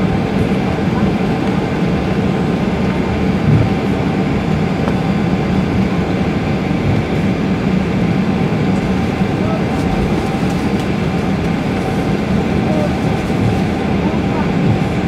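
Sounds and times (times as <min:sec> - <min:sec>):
aircraft cabin drone: 0:00.0 - 0:15.0.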